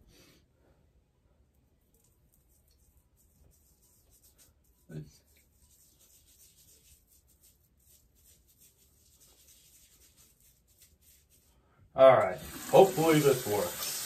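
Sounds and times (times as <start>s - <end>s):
fingers rubbing through beard: 1.9s - 11.6s.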